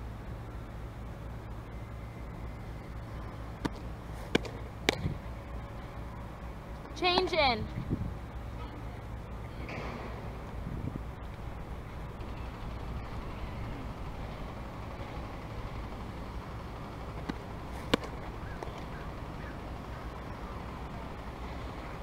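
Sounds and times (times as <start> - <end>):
low outdoor rumble: 0.0 - 22.0
ball smacking into mitt: 3.6 - 5.1, 17.2 - 18.8.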